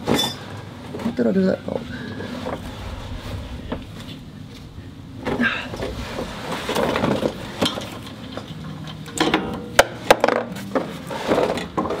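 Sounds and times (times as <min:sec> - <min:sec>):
steady low hum: 0:01.7 - 0:09.2
metal scraping: 0:02.0 - 0:09.0.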